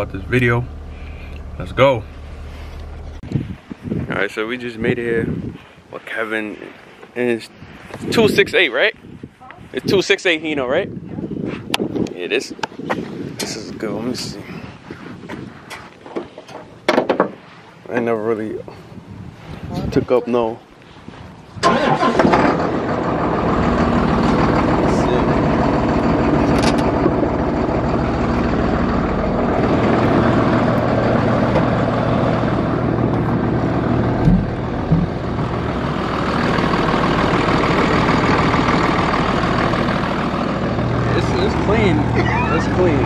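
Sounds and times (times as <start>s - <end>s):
truck diesel engine idling: 0.0s - 3.2s, 21.6s - 43.0s
short thumps: 34.2s - 35.3s.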